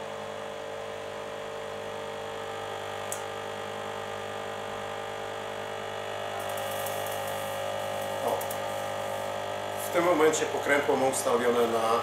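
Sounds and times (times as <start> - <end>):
cooling fan running: 0.0 - 12.0
hazer buzzing loudly: 0.0 - 12.0.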